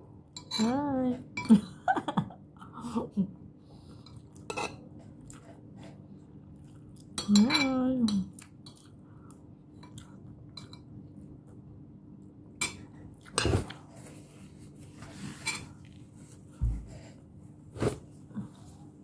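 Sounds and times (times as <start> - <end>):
low steady hum: 0.0 - 19.0
quiet chewing: 3.9 - 7.2, 8.3 - 10.4.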